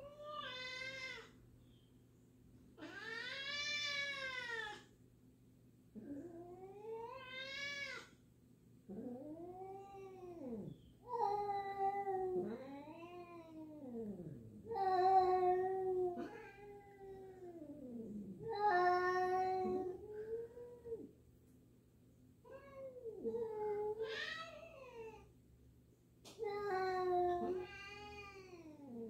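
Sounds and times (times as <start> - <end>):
cats yowling: 0.0 - 1.3, 2.8 - 4.9, 6.0 - 8.1, 8.9 - 21.1, 22.5 - 25.2, 26.5 - 29.0.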